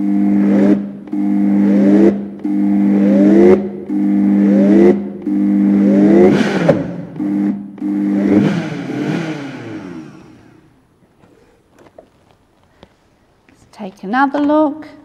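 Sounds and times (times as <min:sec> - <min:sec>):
blender motor bursts: 0:00.0 - 0:10.8.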